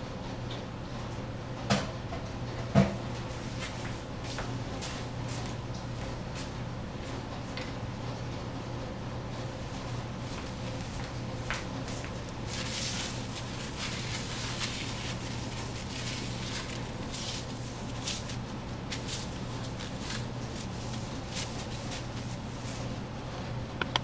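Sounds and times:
steady low hum: 0:00.0 - 0:24.0
cloth wiping a stovetop: 0:09.6 - 0:23.4.

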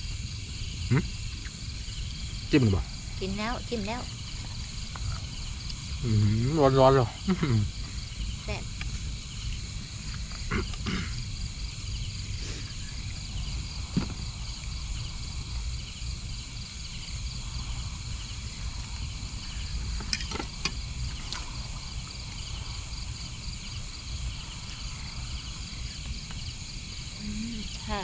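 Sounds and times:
crickets and insects chirping: 0:00.0 - 0:28.0
low background rumble: 0:00.0 - 0:28.0.

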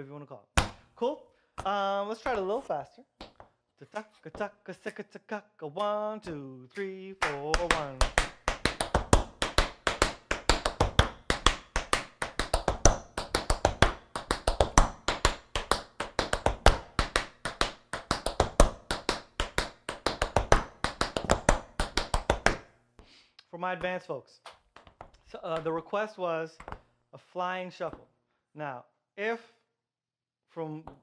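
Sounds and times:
tap shoes on wooden floor: 0:01.6 - 0:03.6, 0:07.2 - 0:22.6, 0:23.8 - 0:26.0, 0:26.6 - 0:26.9.

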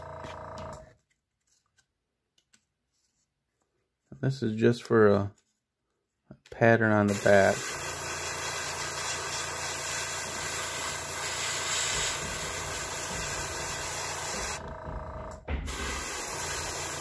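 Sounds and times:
airbrush spraying hiss: 0:07.1 - 0:14.6, 0:15.7 - 0:17.0.

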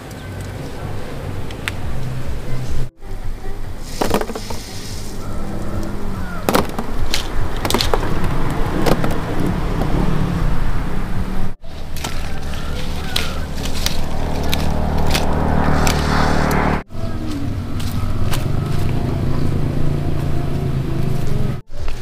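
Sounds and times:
low steady rumble: 0:00.0 - 0:21.6
sharp knocks: 0:06.5 - 0:10.0.

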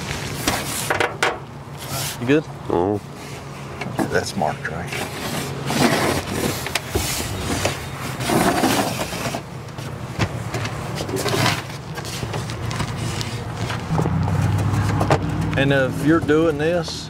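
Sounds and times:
steady low hum: 0:09.6 - 0:17.0.

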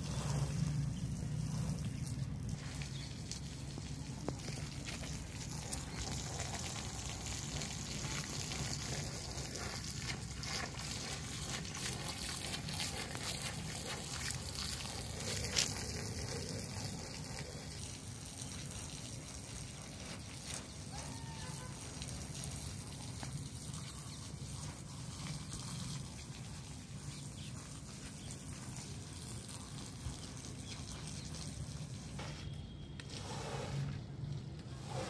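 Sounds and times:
brush scrubbing wet carpet: 0:00.0 - 0:18.1, 0:23.0 - 0:32.3, 0:33.1 - 0:35.0.

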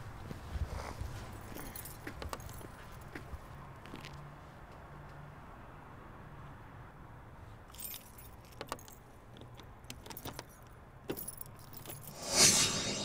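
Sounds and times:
car keys jangling: 0:07.7 - 0:12.1
rush of noise: 0:12.1 - 0:13.0.

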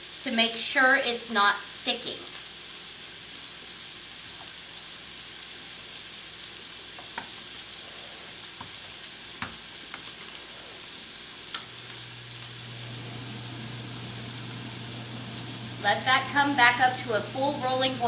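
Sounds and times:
chicken sizzling in frying pan: 0:00.0 - 0:18.0.

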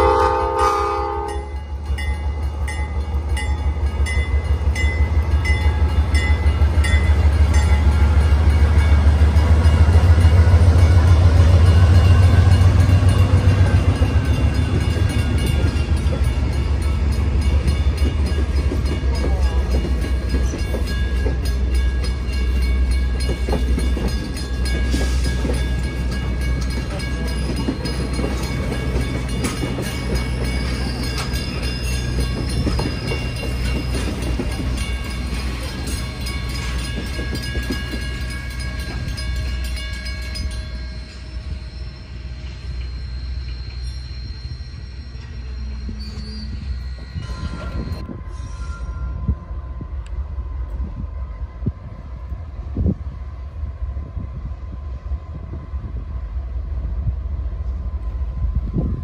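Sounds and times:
crossing signal bells ringing: 0:00.0 - 0:49.6
train rumble: 0:00.0 - 0:59.0
train wheels clicking over rail joints: 0:02.0 - 0:41.7.

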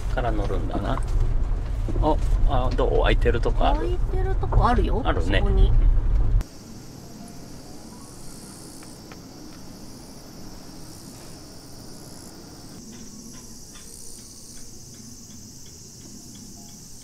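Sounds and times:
insects shrilling: 0:06.4 - 0:17.0.

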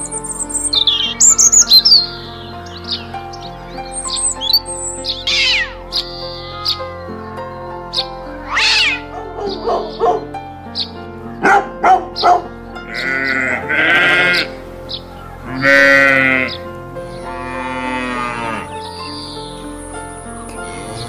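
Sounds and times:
background music: 0:00.0 - 0:21.0
sheep bleating: 0:05.2 - 0:09.9, 0:12.8 - 0:14.6, 0:15.4 - 0:16.6, 0:17.2 - 0:18.8
kitten mewing: 0:05.3 - 0:06.8.

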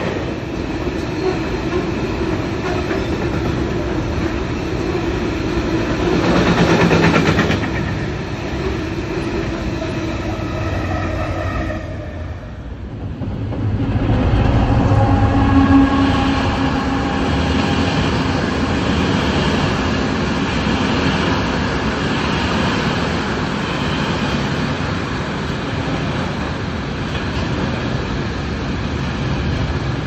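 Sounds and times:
diesel locomotive engine hum: 0:00.0 - 0:30.0
train wagons rumbling on rails: 0:00.0 - 0:30.0.

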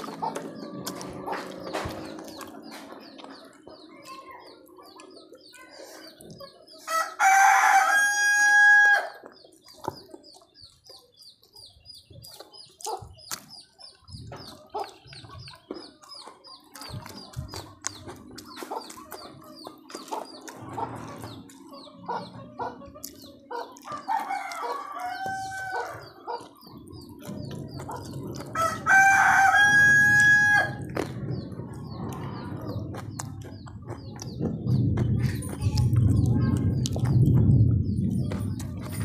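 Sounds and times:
soft clicks and eating noises: 0:00.0 - 0:06.6, 0:09.2 - 0:11.3, 0:14.4 - 0:21.7, 0:23.0 - 0:25.8, 0:35.7 - 0:37.4
rooster crowing: 0:06.9 - 0:09.2, 0:23.9 - 0:26.0, 0:28.6 - 0:30.8.

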